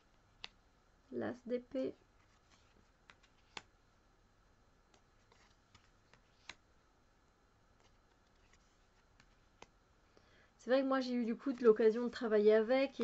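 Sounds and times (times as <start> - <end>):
cards clicking in hand: 2.6 - 3.7, 4.9 - 6.6.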